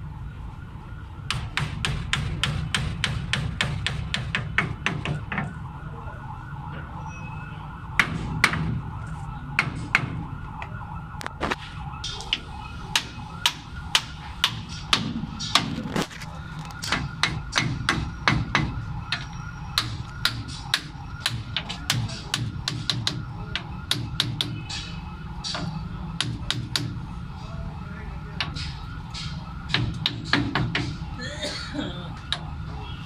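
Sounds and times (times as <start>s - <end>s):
hammer striking steel: 23.9s - 27.0s, 28.4s - 31.0s.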